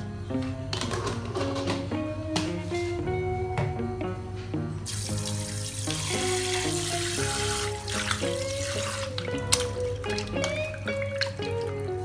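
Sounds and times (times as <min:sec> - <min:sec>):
plucked background music: 0:00.0 - 0:12.0
tap water running into metal pot: 0:04.9 - 0:12.0.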